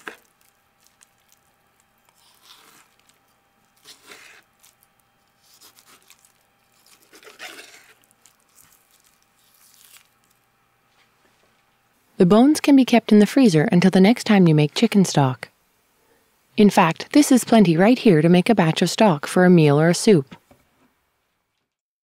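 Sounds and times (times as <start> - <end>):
knife scraping raw meat: 2.0 - 10.4.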